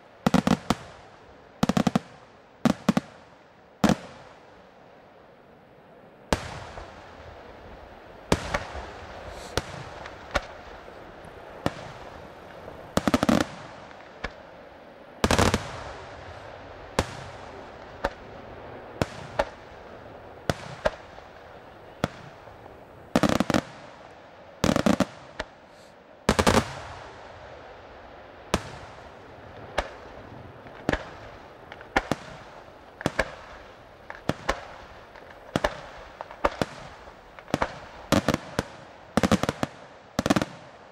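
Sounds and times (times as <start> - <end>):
background hiss: 0.0 - 40.9
firework shells bursting: 8.4 - 10.7.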